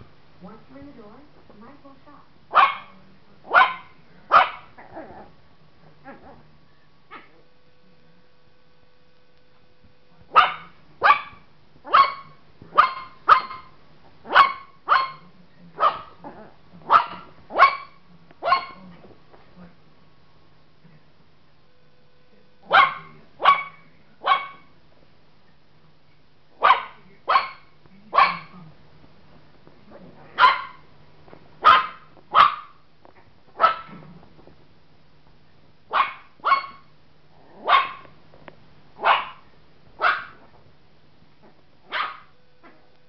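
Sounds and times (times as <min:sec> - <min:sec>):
dog barking: 0:02.5 - 0:04.7, 0:10.3 - 0:13.7, 0:14.3 - 0:16.2, 0:16.8 - 0:18.9, 0:22.7 - 0:24.7, 0:26.6 - 0:28.6, 0:30.4 - 0:30.8, 0:31.6 - 0:32.8, 0:33.6 - 0:34.0, 0:35.9 - 0:36.9, 0:37.6 - 0:38.1, 0:39.0 - 0:39.4, 0:40.0 - 0:40.4, 0:41.9 - 0:42.8.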